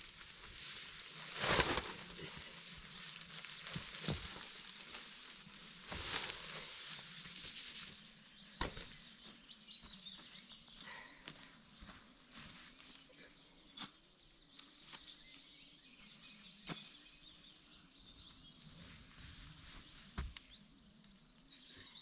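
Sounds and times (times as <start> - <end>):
tarp fabric rustling and flapping: 0.0 - 8.1.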